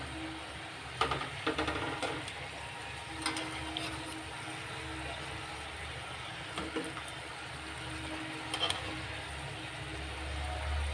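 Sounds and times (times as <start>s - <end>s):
food deep-frying sizzle: 0.0s - 10.9s
wire skimmer scraping metal pot: 3.1s - 4.4s, 6.6s - 9.3s.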